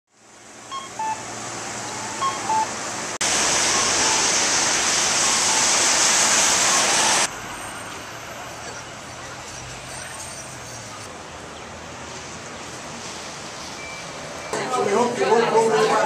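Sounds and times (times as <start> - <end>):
two-note electronic beep: 0.7 - 1.2, 1.8 - 2.7
outdoor hiss: 2.7 - 8.2.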